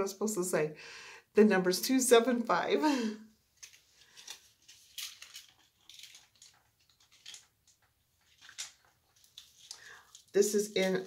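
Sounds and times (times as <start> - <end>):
bracelets clicking and rustling: 3.5 - 11.0.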